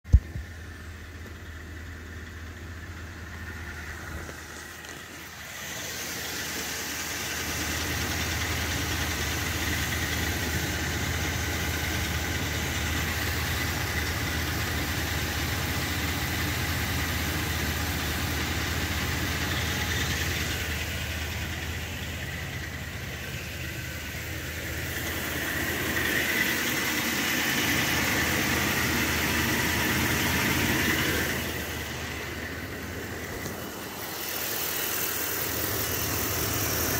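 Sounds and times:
pickup engine idling: 0:00.0 - 0:36.9
steady high whine: 0:17.0 - 0:36.9.

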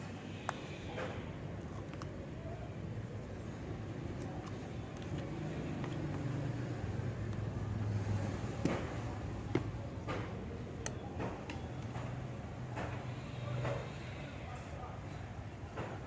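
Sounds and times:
motor vehicle rumble: 0:03.4 - 0:13.5.

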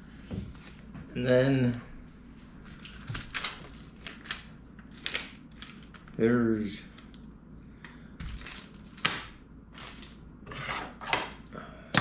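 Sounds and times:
paper and plastic bag rustling: 0:02.6 - 0:06.2, 0:08.2 - 0:09.1, 0:09.7 - 0:10.2.

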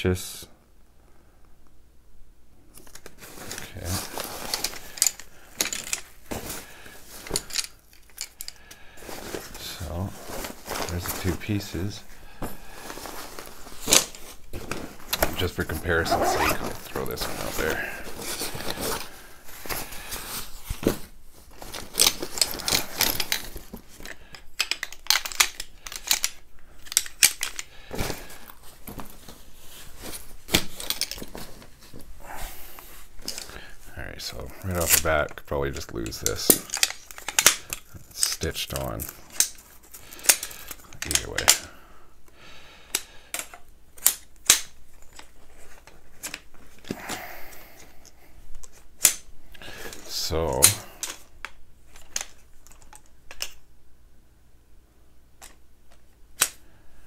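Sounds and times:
nylon sack rustling: 0:03.2 - 0:05.0, 0:09.0 - 0:11.9, 0:12.7 - 0:19.8
metal poles clinking and rattling: 0:04.0 - 0:08.6.

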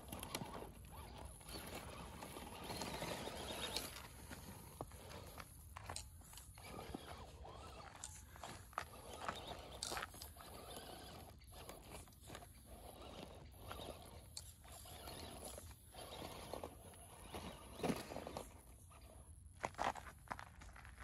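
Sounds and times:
footsteps crunching on dirt trail: 0:00.5 - 0:13.9, 0:19.6 - 0:21.0.

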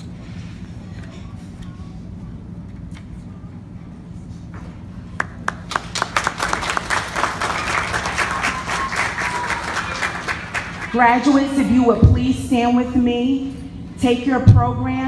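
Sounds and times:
audience applause: 0:05.2 - 0:11.4.

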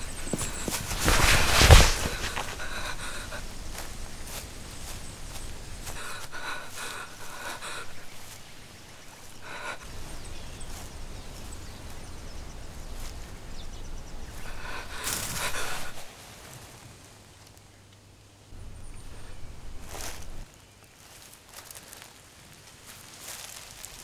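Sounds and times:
person gasping for breath: 0:00.0 - 0:04.4, 0:05.3 - 0:10.3, 0:14.3 - 0:16.1
low rumble of ambience: 0:00.0 - 0:16.1, 0:18.5 - 0:20.5.

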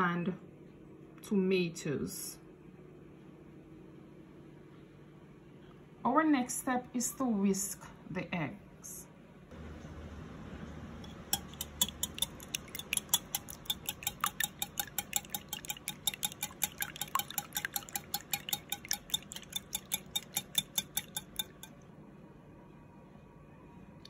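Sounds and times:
wire whisk clicking in glass bowl: 0:11.0 - 0:21.8.

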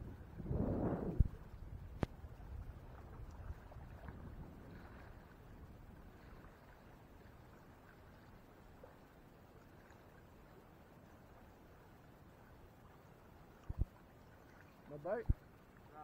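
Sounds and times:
wind rumble on microphone: 0:00.0 - 0:08.9, 0:13.6 - 0:14.0, 0:15.2 - 0:15.4
water lapping at shore: 0:00.0 - 0:16.0.

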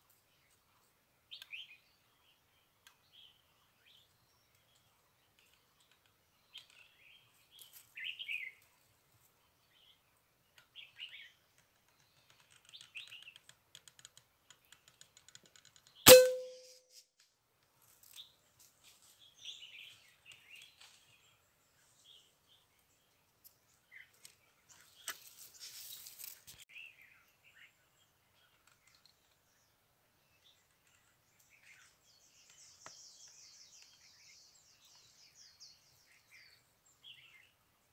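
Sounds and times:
small birds chirping: 0:00.0 - 0:16.4, 0:18.0 - 0:37.9
air rifle shot: 0:16.1 - 0:16.6
short ringing tone: 0:16.1 - 0:16.7.

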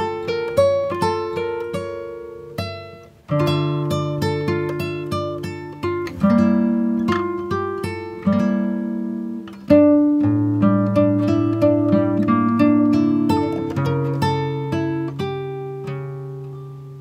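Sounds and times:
plucked string music: 0:00.0 - 0:17.0.

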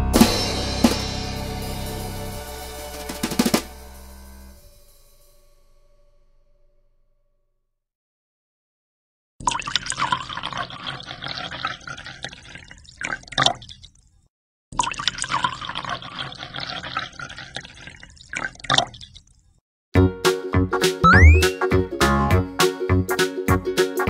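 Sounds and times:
music: 0:00.0 - 0:05.5, 0:20.0 - 0:24.0
water pouring into glass tank: 0:09.4 - 0:13.9, 0:14.8 - 0:19.2.

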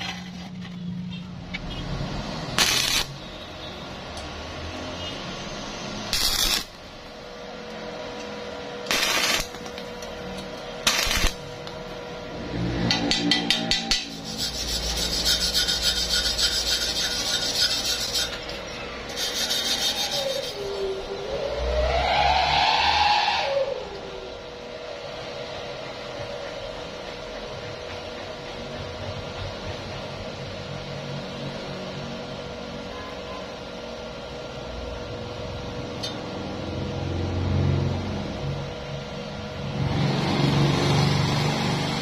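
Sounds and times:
welding arc bursts: 0:02.4 - 0:03.2, 0:06.0 - 0:06.9, 0:08.8 - 0:09.7, 0:10.8 - 0:11.6
welding arc crackle: 0:02.4 - 0:03.3, 0:06.0 - 0:07.0, 0:08.8 - 0:11.8
welding arc hiss: 0:02.4 - 0:03.3, 0:05.9 - 0:07.1, 0:08.8 - 0:10.2, 0:10.8 - 0:11.7.

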